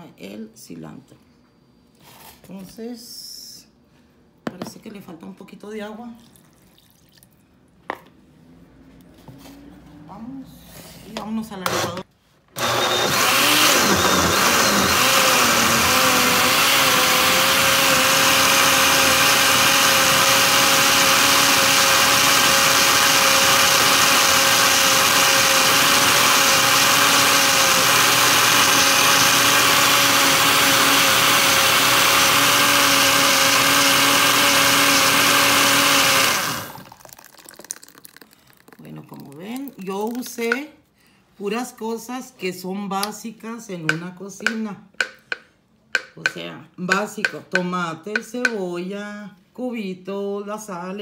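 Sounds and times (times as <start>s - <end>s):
blender running: 11.6s - 37.5s.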